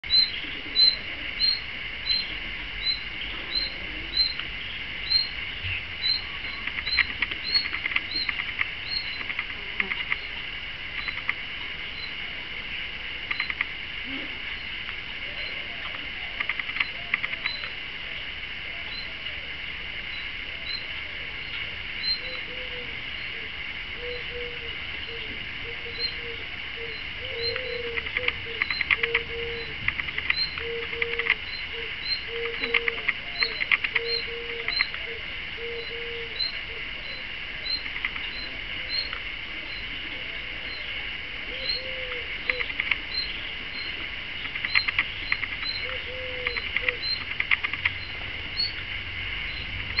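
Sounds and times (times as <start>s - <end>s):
low cooing: 3.4s - 4.4s, 22.2s - 29.8s, 30.6s - 37.1s, 41.5s - 42.7s, 45.8s - 47.0s.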